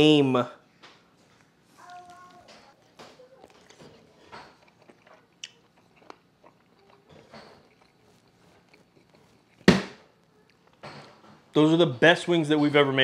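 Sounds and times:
person chewing chicken wing: 4.5 - 9.6.

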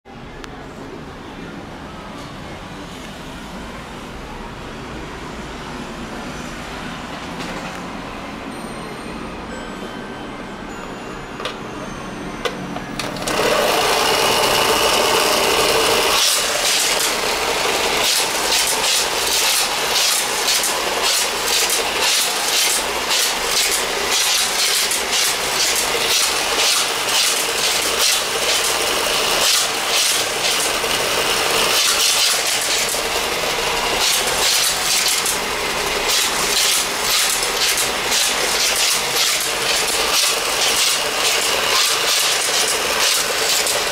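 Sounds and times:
toy race track whirring: 11.4 - 11.6, 12.4 - 43.9
toy cars rattling on track: 12.9 - 43.9.

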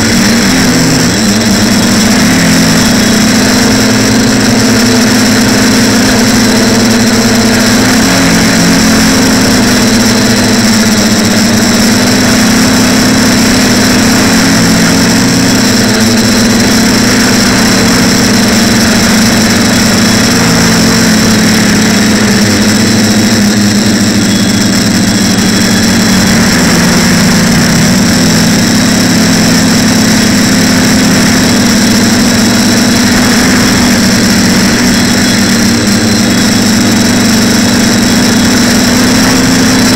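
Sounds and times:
drone motors buzzing: 0.0 - 39.9.

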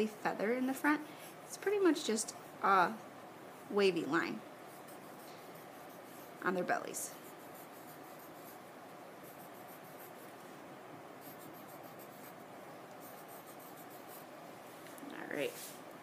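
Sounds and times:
pencil scratching on paper: 4.7 - 10.3, 11.2 - 14.3.

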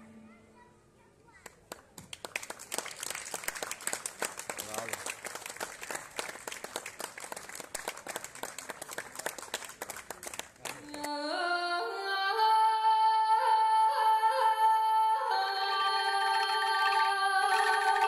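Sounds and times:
audience applause: 1.7 - 10.8.

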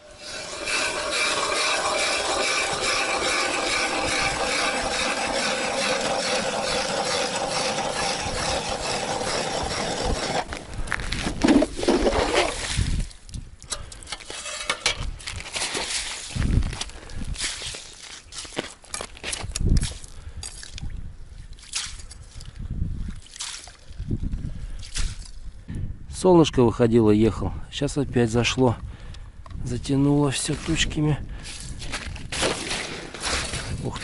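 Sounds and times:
ice auger grinding through ice: 0.0 - 13.0, 31.5 - 34.0
knocks and scrapes: 0.0 - 13.0, 13.7 - 20.0, 31.5 - 34.0.

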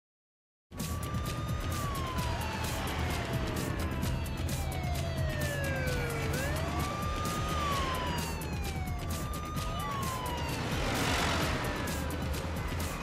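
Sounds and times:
music with a steady beat: 0.7 - 13.0
police siren wailing: 0.7 - 13.0.

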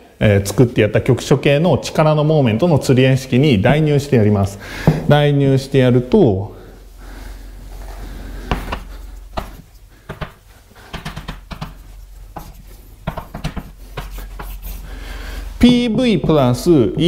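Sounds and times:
low electrical hum: 0.0 - 17.0
pen tapping and scratching: 8.5 - 14.6.

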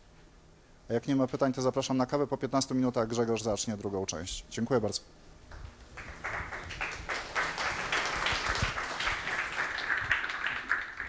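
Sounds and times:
audience applause: 6.0 - 11.0.

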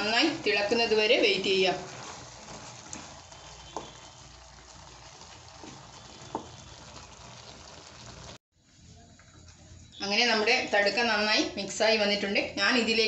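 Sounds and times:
curry bubbling in a pan: 0.0 - 8.4
spatula stirring: 0.0 - 9.8.

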